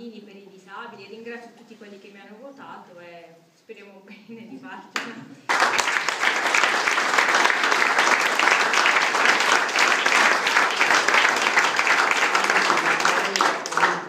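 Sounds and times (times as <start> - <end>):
crowd applauding: 5.5 - 14.0.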